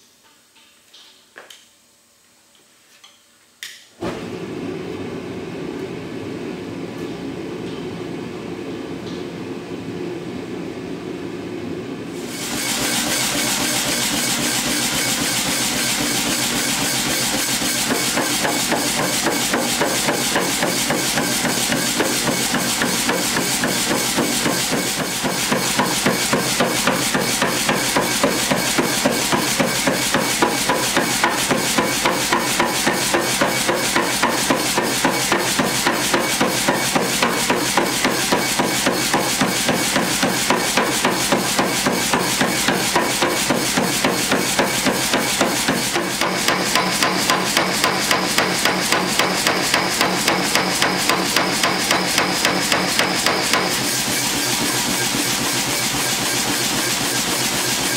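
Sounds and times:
power hammer striking steel: 0:12.5 - 0:55.0.

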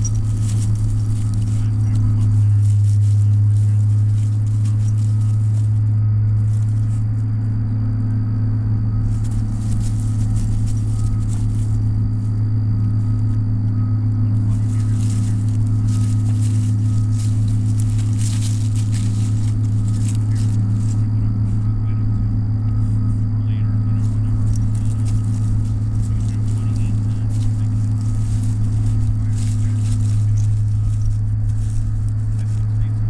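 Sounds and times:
faint crackling and rustling: 0:00.0 - 0:33.0
low mechanical hum: 0:00.0 - 0:33.0.

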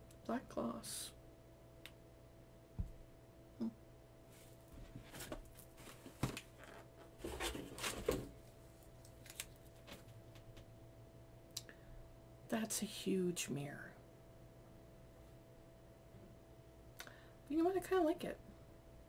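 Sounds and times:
box rustling and knocking: 0:04.8 - 0:08.4.

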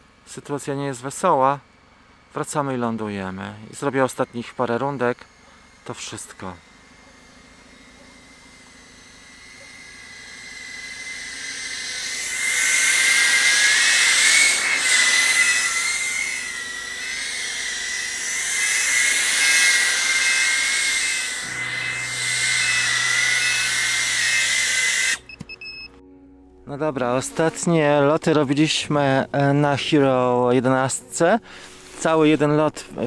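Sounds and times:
drone motors whining: 0:01.6 - 0:26.1.

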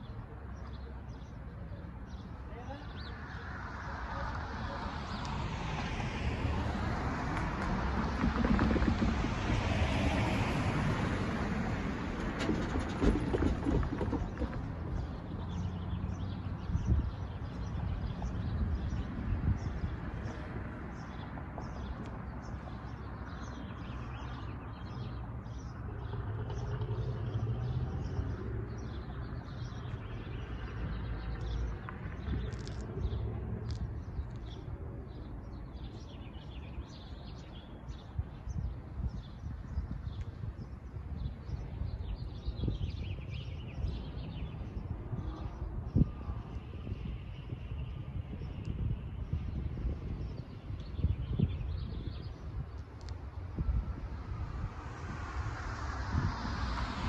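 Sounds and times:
low rumble of street traffic: 0:00.0 - 0:57.0
small birds chirping: 0:12.6 - 0:53.4.

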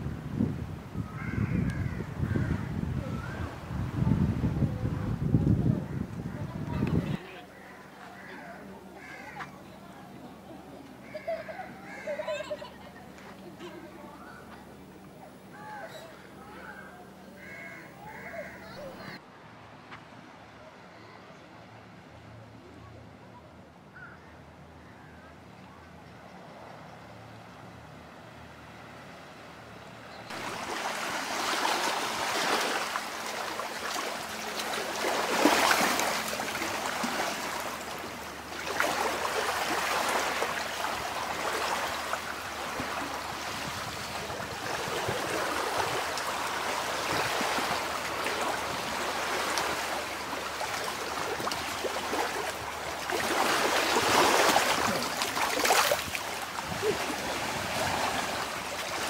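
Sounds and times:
waves washing among rocks: 0:30.3 - 0:59.0.

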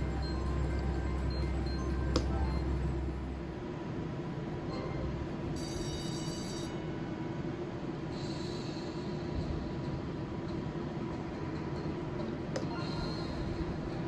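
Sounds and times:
slot machine hum: 0:00.0 - 0:03.7.

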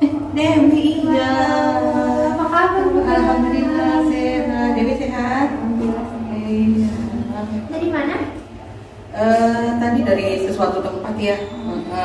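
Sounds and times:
person singing unaccompanied: 0:00.0 - 0:07.2.

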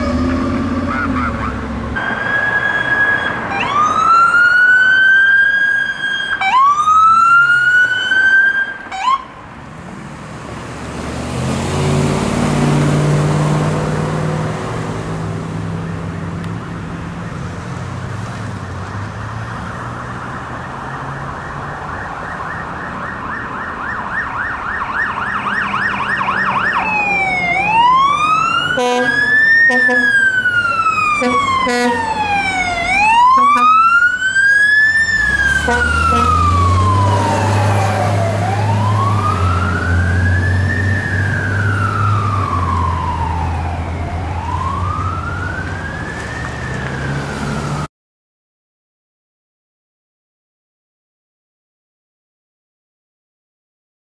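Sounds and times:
rapid yelp siren: 0:00.0 - 0:09.3, 0:19.5 - 0:47.9
wailing siren: 0:00.0 - 0:09.4, 0:18.5 - 0:47.9
vehicle passing: 0:09.0 - 0:47.9.

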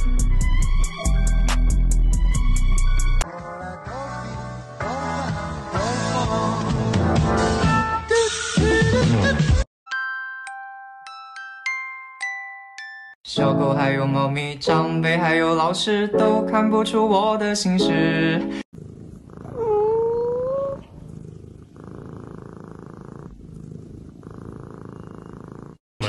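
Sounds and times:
music with singing voice: 0:00.2 - 0:09.6, 0:13.3 - 0:18.6
kitten purring: 0:18.7 - 0:25.8
kitten rising cry: 0:19.5 - 0:20.8.

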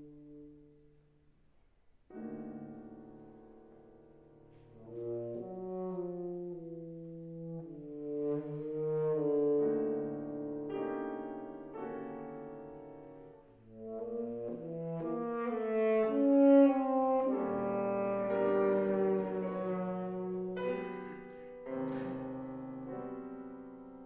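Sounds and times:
piano accompaniment: 0:00.0 - 0:24.0
tenor saxophone melody: 0:04.6 - 0:11.5, 0:13.2 - 0:23.8.

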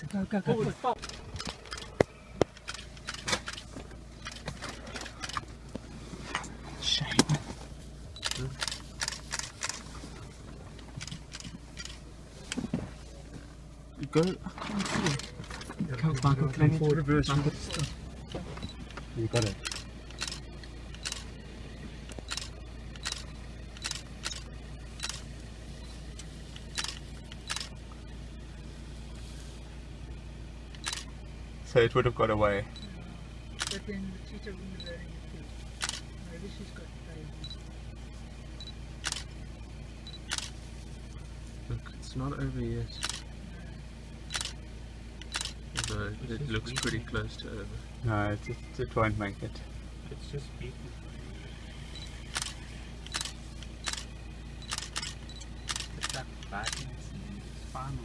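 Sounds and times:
low steady vehicle hum: 0:00.0 - 0:58.0
handling clicks and rattles: 0:01.0 - 0:05.5, 0:10.7 - 0:12.8
camera shutter clicking: 0:25.0 - 0:25.2, 0:35.8 - 0:36.0, 0:40.3 - 0:40.5, 0:44.3 - 0:44.6, 0:45.2 - 0:46.0, 0:52.3 - 0:56.8.

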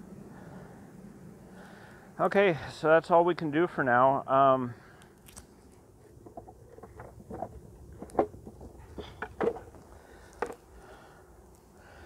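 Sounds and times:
wooden knocks and clicks: 0:06.2 - 0:10.6.

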